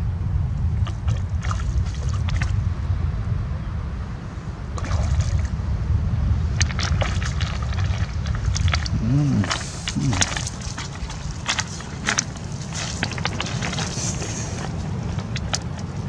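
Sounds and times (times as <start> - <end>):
low rumble: 0.0 - 16.0
net splashing in water: 0.8 - 2.5, 4.8 - 5.5, 6.6 - 16.0.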